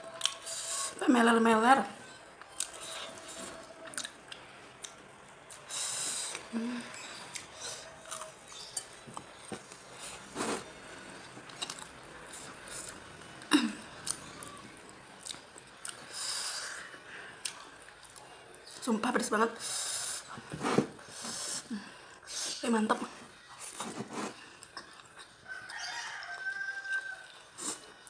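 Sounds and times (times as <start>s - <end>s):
breathy sniff: 19.6s - 22.6s.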